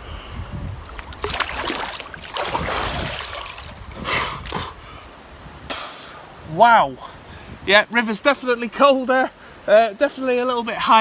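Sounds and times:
river water splashing: 0.8 - 5.3.

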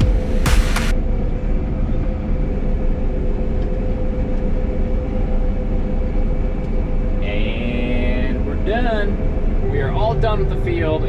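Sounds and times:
combine harvester drone: 0.0 - 11.0.

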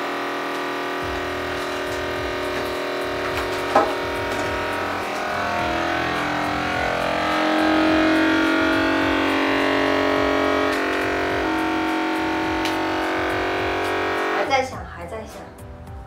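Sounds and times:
vacuum sealer pump whining: 0.0 - 14.6.

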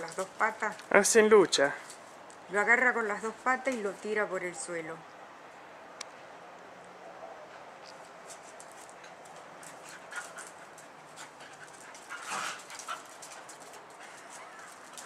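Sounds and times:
dogs scuffling: 7.6 - 15.0.

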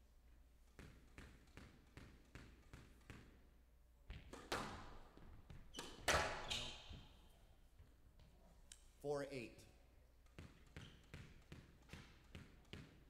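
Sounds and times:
ball hitting walls: 0.8 - 3.4, 4.0 - 7.2, 10.2 - 13.0
squash ball bouncing: 0.8 - 3.4, 4.0 - 7.2, 10.2 - 13.0
racket hitting ball: 4.1 - 7.1, 10.2 - 13.0.

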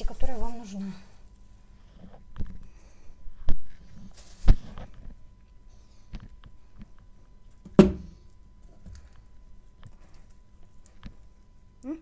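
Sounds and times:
objects knocking on tabletop: 7.7 - 8.1.

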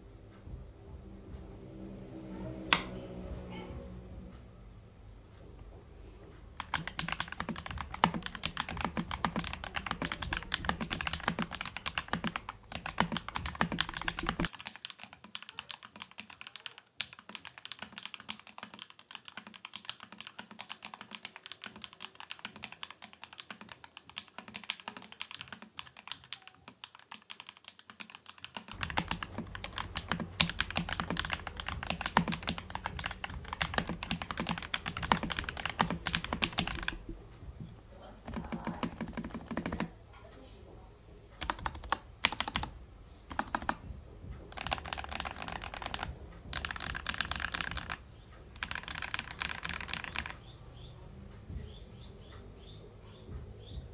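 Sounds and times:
mechanical keyboard typing: 6.6 - 37.2, 38.2 - 40.0, 41.4 - 50.5.

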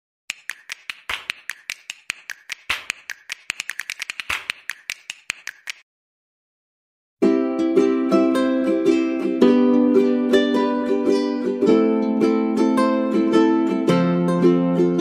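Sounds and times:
rapid sharp clicks: 0.3 - 5.8.

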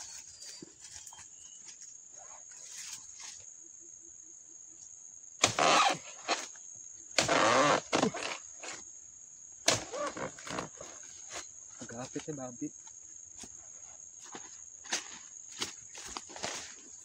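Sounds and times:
high insect whine: 0.0 - 17.0
chisel chopping palm fronds: 5.4 - 6.5, 7.2 - 8.8, 9.7 - 11.4.

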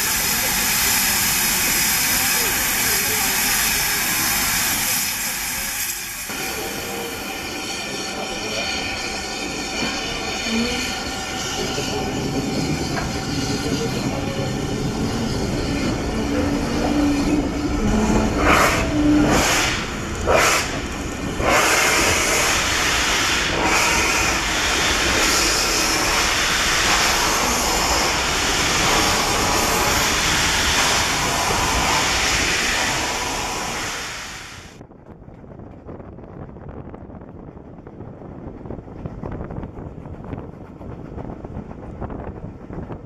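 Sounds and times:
loud hiss of steam venting: 0.0 - 12.6, 18.3 - 34.8
steam locomotive exhaust chuffs: 0.0 - 34.4.

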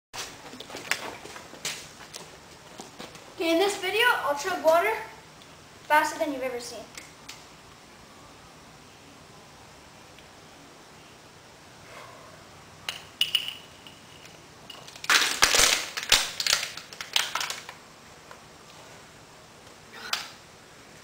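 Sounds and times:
plastic bottle crackling: 14.9 - 17.8.

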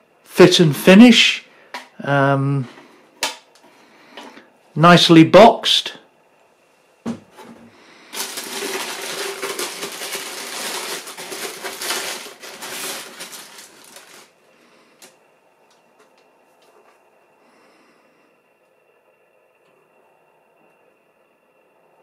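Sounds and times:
tissue paper rustling: 8.1 - 14.4.

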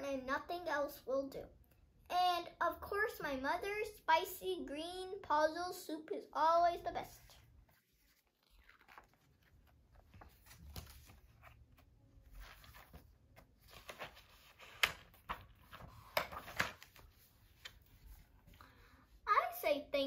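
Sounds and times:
book pages rustling: 7.0 - 18.7
paper snaps: 14.6 - 15.2.

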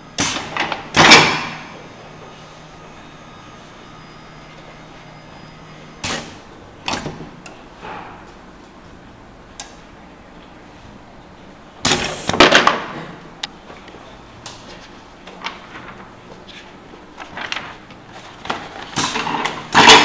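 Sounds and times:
pneumatic cylinders clunking: 0.0 - 2.4, 5.8 - 8.5.

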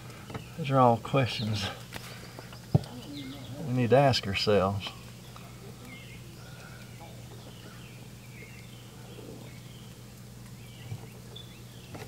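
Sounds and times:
steady low hum: 0.0 - 12.0
faint bird chirps: 1.3 - 3.8, 4.9 - 12.0.

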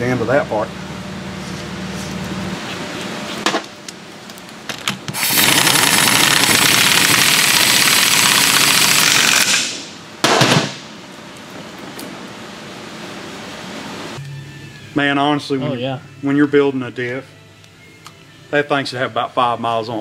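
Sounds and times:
pneumatic impact wrench hammering: 5.1 - 10.8.

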